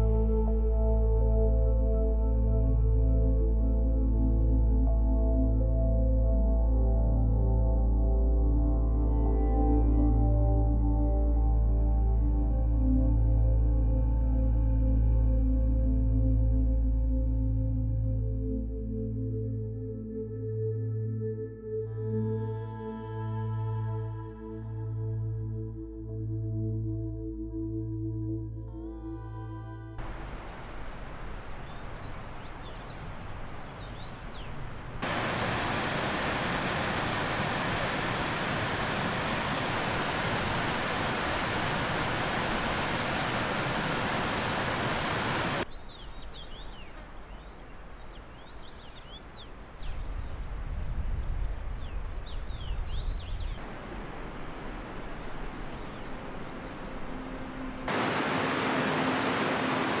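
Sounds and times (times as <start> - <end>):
river rushing over rocks: 30.0 - 31.4, 35.0 - 45.6, 57.9 - 60.0
birds chirping: 30.0 - 53.6, 54.2 - 60.0.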